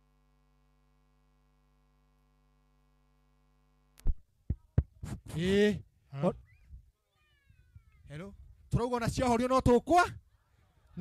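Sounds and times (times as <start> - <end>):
faint steady hum: 0.0 - 8.7.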